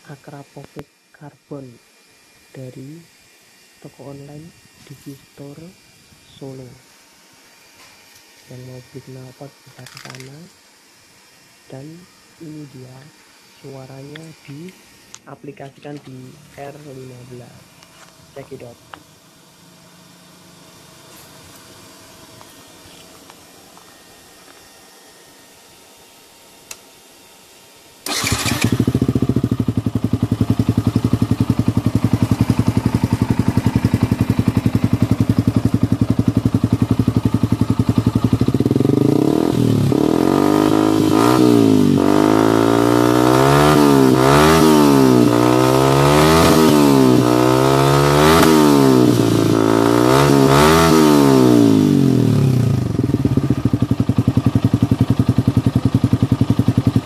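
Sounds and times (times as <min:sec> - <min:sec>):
motorcycle engine idling and revving: 0:28.0 - 0:57.0.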